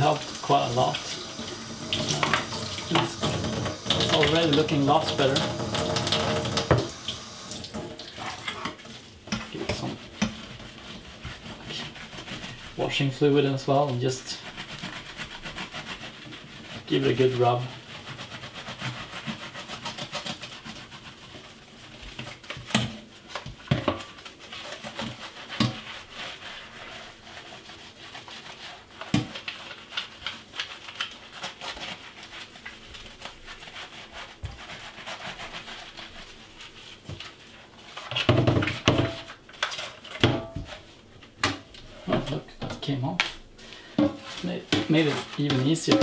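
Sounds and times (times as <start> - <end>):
wet scrubbing: 0.0 - 41.1, 41.8 - 46.0
knocking and handling noise: 1.9 - 7.0, 22.1 - 24.2, 38.0 - 46.0.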